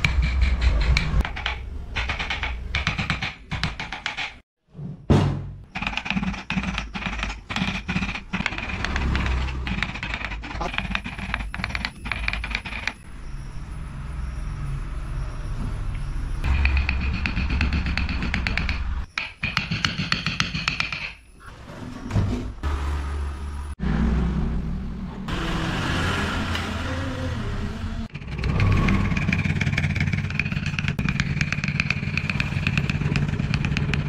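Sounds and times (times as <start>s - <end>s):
mallet striking chisel into wood: 16.6s - 21.2s.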